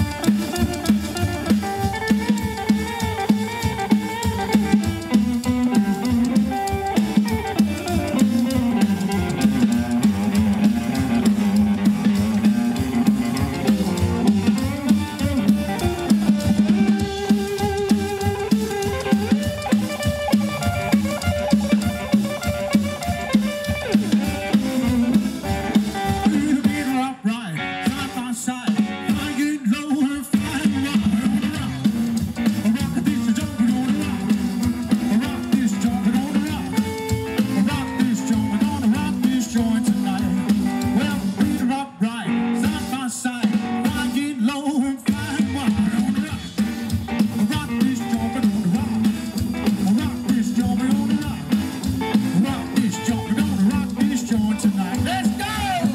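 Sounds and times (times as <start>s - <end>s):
double bass: 0.0s - 23.3s
drum kit beat: 0.0s - 27.0s, 27.9s - 29.6s, 30.2s - 41.7s, 42.6s - 44.4s, 45.0s - 55.9s
electric guitar lead: 0.0s - 29.6s, 30.3s - 44.4s, 45.0s - 55.9s.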